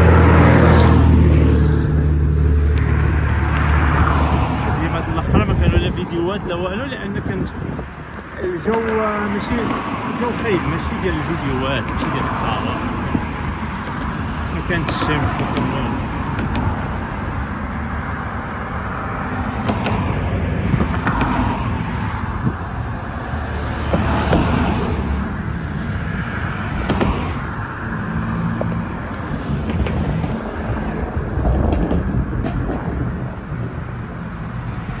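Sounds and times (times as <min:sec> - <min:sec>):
car tyres and engine rumble: 0:00.0 - 0:35.0
surrounding traffic: 0:00.0 - 0:35.0.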